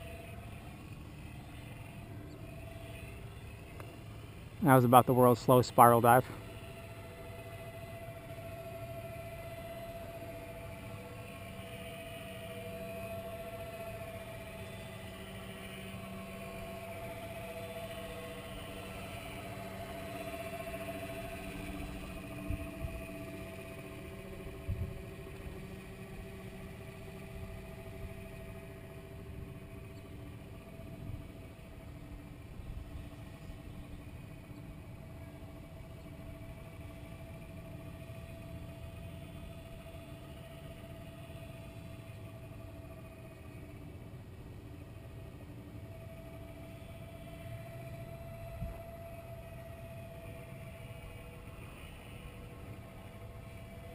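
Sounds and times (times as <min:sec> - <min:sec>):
distant model aircraft motor droning: 0:00.0 - 0:53.9.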